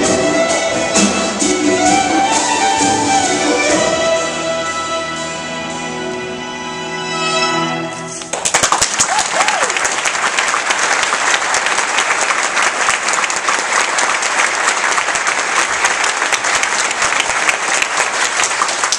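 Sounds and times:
audience applause: 8.2s - 18.9s.

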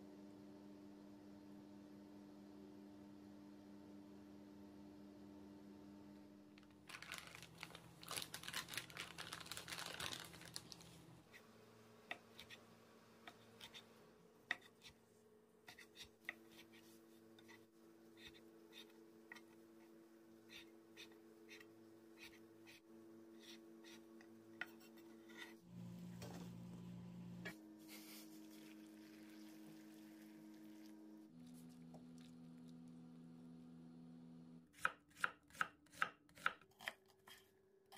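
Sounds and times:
rustling: 6.8s - 10.9s
hot water poured into strainer: 28.4s - 31.0s.

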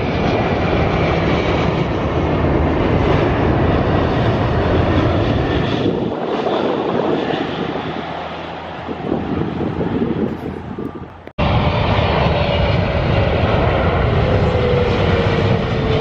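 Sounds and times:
jet engines rushing with high whine: 0.0s - 16.0s.

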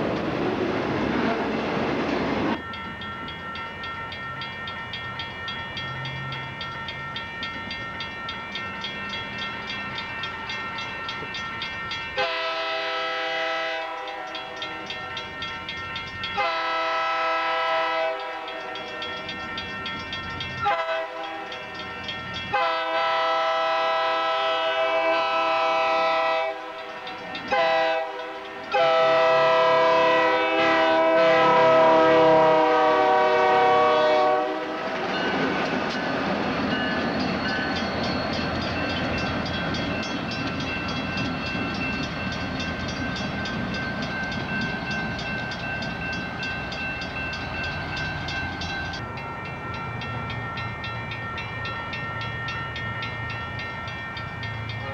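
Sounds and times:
locomotive air horn blasts: 12.2s - 14.4s, 16.4s - 18.7s, 20.6s - 21.4s, 22.5s - 26.8s, 27.5s - 34.8s
train cars clattering on rails: 25.8s - 54.9s.

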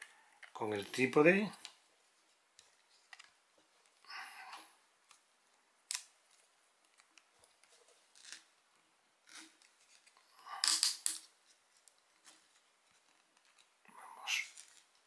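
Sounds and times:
plastic and metal handling noises: 0.0s - 5.2s, 9.2s - 15.0s.

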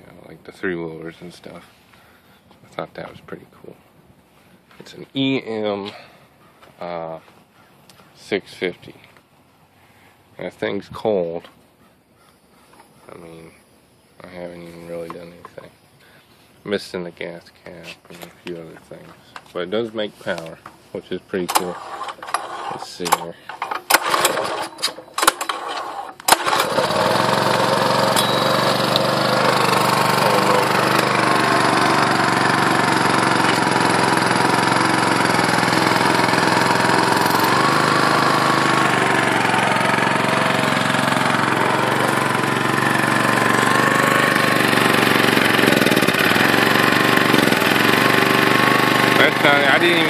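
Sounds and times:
small generator engine running: 21.5s - 50.0s.

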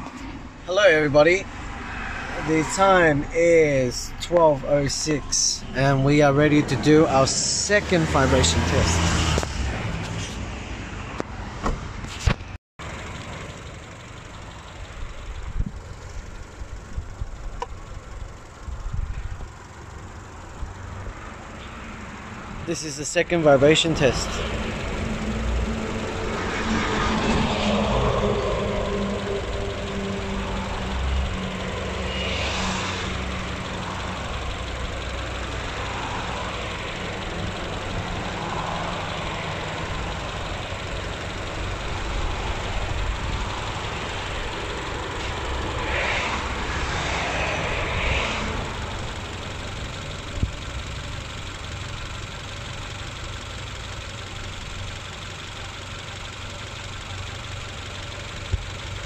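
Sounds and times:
car engine idling: 0.0s - 59.0s
rushing noise: 42.3s - 49.2s.

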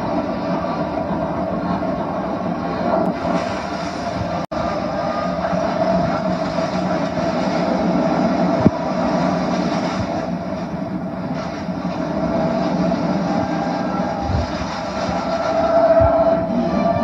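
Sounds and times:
spaceship drone and hum: 0.0s - 17.0s.

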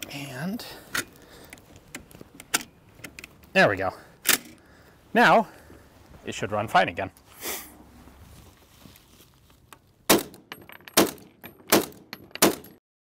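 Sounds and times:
rifle bolt cycling: 4.2s - 4.6s
rifle gunshots: 10.1s - 10.4s.

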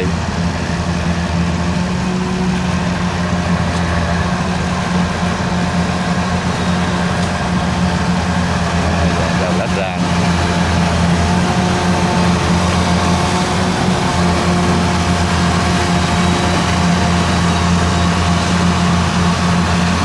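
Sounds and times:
combine harvester engine droning: 0.0s - 20.0s.

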